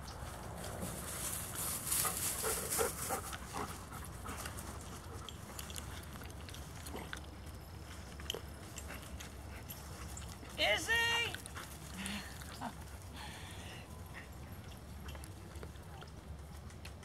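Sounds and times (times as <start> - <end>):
rustling in grass: 0.0 - 6.0.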